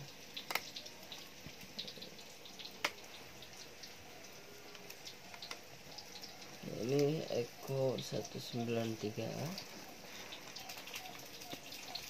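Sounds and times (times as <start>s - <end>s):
plastic and bubble wrap crinkling: 4.6s - 12.0s.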